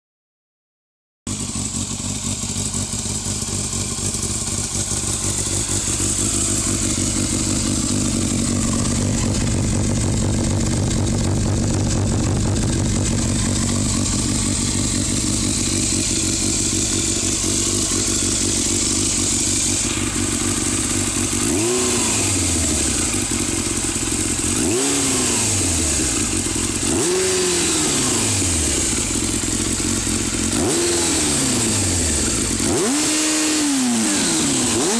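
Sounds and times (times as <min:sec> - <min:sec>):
motorcycle engine idling and revving: 0:01.3 - 0:34.9.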